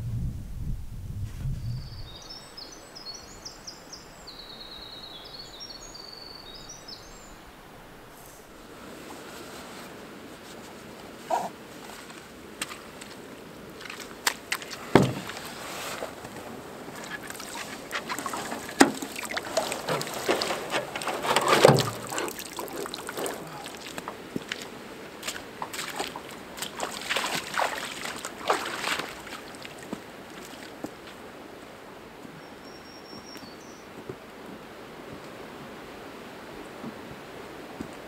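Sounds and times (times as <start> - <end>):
boots sloshing in shallow water: 8.8 - 31.4
canoe hull knocks and thumps: 14.7 - 24.6.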